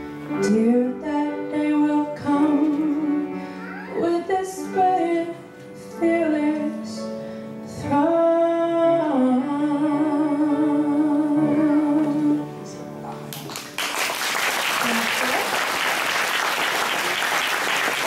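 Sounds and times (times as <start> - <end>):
woman singing into a microphone: 0.3 - 3.3, 4.0 - 7.1, 7.7 - 12.7.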